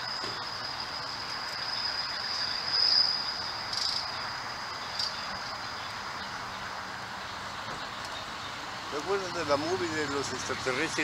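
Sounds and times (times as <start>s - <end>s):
crickets trilling: 0.0s - 11.0s.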